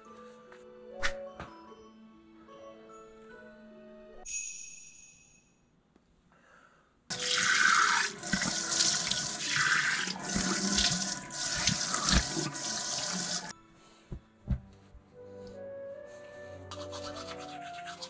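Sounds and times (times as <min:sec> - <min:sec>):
running water splashing: 0:07.1 - 0:13.5.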